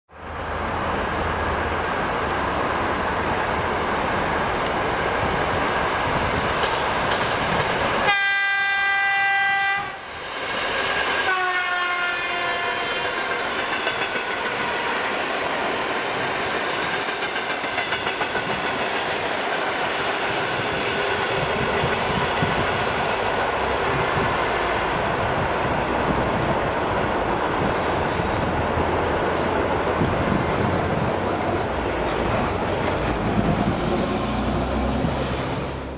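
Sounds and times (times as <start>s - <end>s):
train wheels rumbling on rails: 0.2s - 35.9s
train horn blasts: 8.0s - 10.0s, 11.2s - 13.2s.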